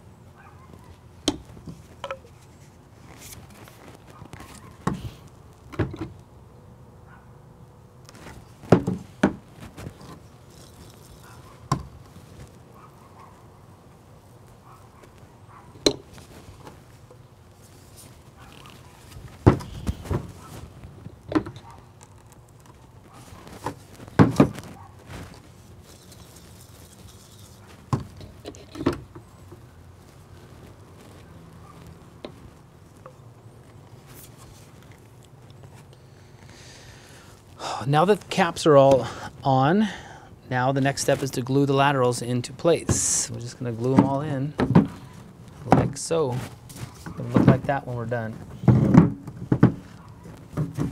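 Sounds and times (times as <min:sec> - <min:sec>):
plastic pipe and caps knocking: 0:01.2 - 0:02.3, 0:08.6 - 0:10.7, 0:43.9 - 0:45.0, 0:48.6 - 0:49.9, 0:50.5 - 0:50.9.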